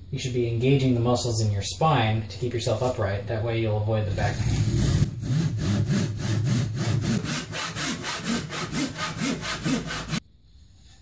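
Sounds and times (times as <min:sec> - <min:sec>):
hand saw cutting wood: 0:04.2 - 0:10.2.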